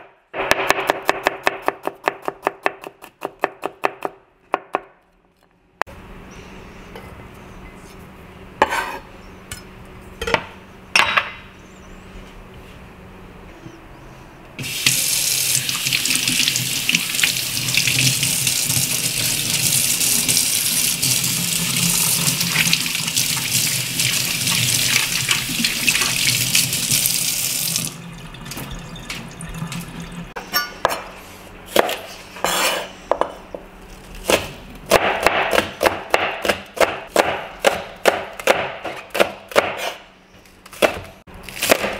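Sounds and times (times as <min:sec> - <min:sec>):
kitchen tap running: 0:14.6 - 0:30.4
knife chopping on plastic board: 0:34.2 - 0:40.0, 0:40.7 - 0:41.9.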